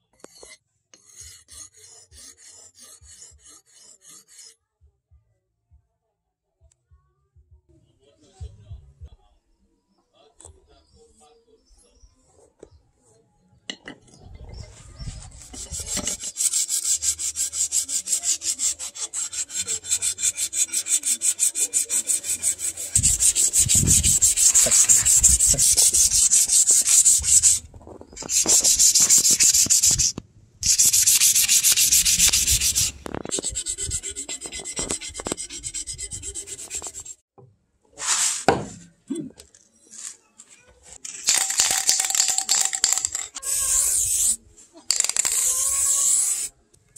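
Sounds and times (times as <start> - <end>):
sandpaper rubbing wood: 1.1 - 4.5, 14.8 - 37.2, 38.0 - 38.5, 41.3 - 46.5
spray can shaken with rattling ball: 14.6 - 37.2, 41.0 - 46.5.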